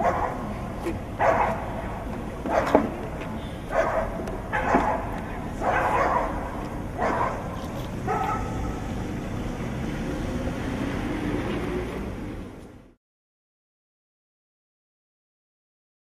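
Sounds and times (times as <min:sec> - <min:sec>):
dog barking: 0:00.0 - 0:00.5, 0:01.2 - 0:01.8, 0:02.5 - 0:02.8, 0:03.7 - 0:08.8
steady background noise: 0:00.0 - 0:13.0.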